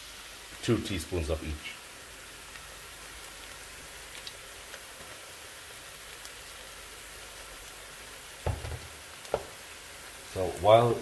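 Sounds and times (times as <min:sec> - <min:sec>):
onions sizzling in oil: 0:00.0 - 0:11.0
oil popping: 0:08.4 - 0:09.8.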